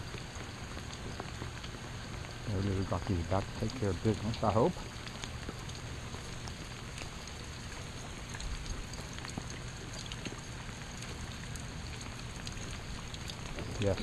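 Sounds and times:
light rain: 0.0 - 14.0
raindrop ticks: 0.0 - 14.0.

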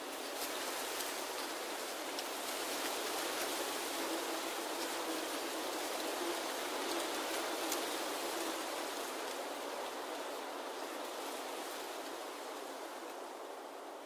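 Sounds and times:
small crackles: 0.0 - 9.5
leaves rustling: 0.0 - 14.0.

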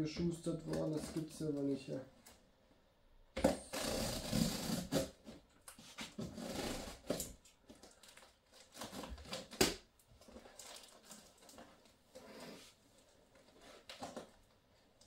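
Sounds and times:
cardboard and tape rustling: 3.4 - 15.0.

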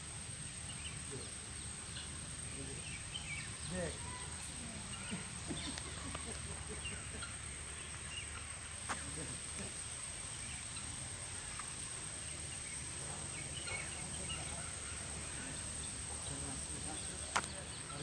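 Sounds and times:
faint bird chirps: 0.6 - 18.0.

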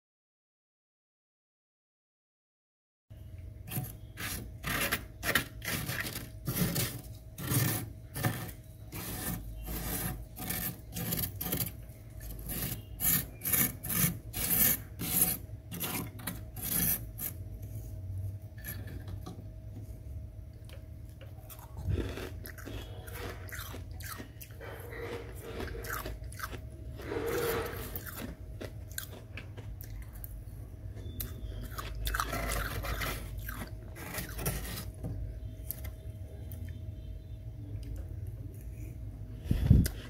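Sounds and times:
fingertips scratching freezer frost: 3.6 - 17.9, 21.6 - 29.2, 31.1 - 35.1.

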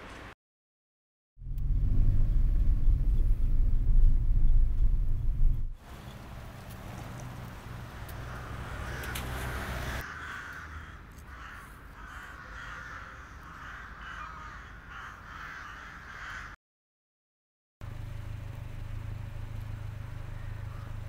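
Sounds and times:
low rumble: 1.4 - 5.8
crows cawing: 7.8 - 16.6, 20.4 - 21.0.

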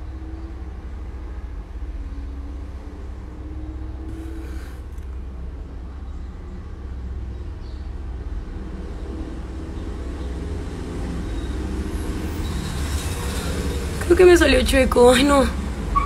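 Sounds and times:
faint hum: 0.0 - 12.0
motor vehicle engine rumbling: 0.0 - 16.0.

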